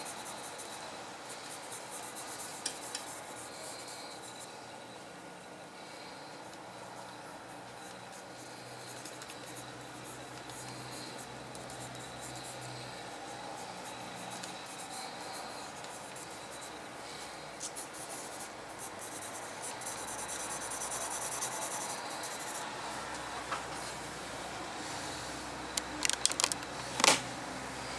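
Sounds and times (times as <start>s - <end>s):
pencil scratching on paper: 0.0s - 4.6s, 5.8s - 22.7s.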